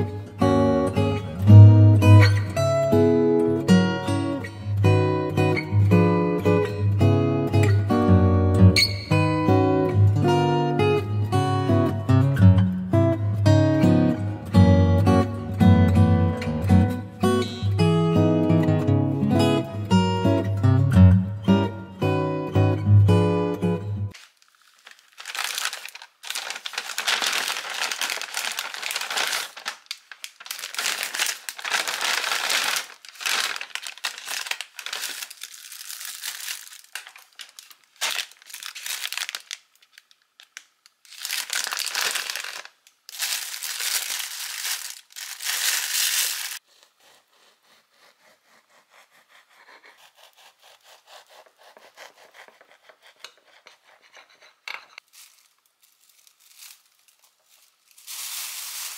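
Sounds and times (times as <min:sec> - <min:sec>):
paper and plastic wrappers crinkling: 0:24.1 - 0:46.6, 0:55.0 - 0:58.9.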